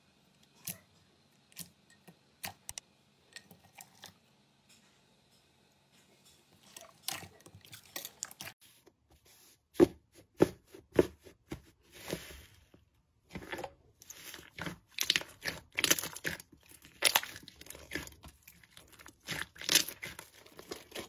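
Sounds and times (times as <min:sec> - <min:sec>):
slime crackling and popping: 0:14.5 - 0:21.0.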